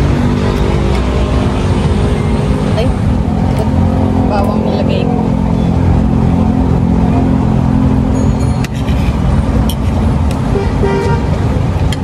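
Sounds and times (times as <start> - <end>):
road traffic rumbling: 0.0 - 12.0
vehicle horn toot: 10.6 - 11.4.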